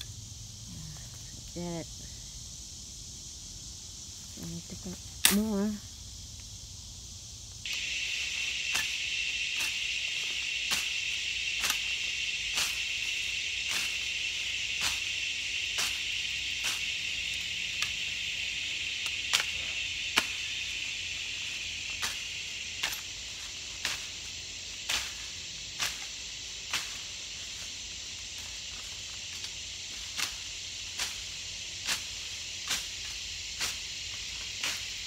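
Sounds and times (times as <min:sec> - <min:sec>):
insects chorus: 0:00.0 - 0:35.0
cane cutter chopping grass: 0:07.7 - 0:12.9, 0:13.6 - 0:14.1, 0:15.7 - 0:16.9.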